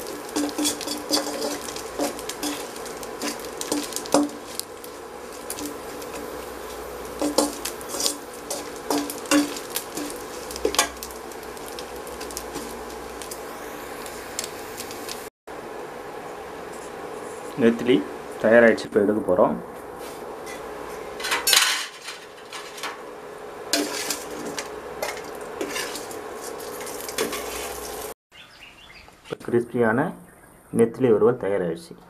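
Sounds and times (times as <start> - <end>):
metal spatula scraping a pan: 0.0 - 13.4, 20.0 - 23.0, 23.7 - 28.0
oil sizzling: 0.0 - 18.7, 19.8 - 28.2.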